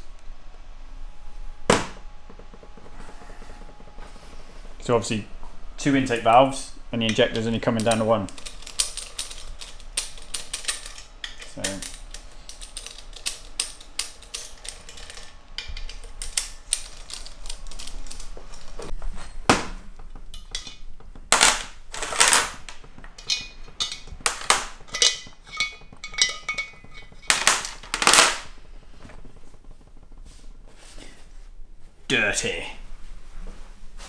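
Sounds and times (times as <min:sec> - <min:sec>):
sharp metallic cracks: 0:20.3 - 0:28.6
metal hand tools clattering on metal: 0:20.4 - 0:28.4.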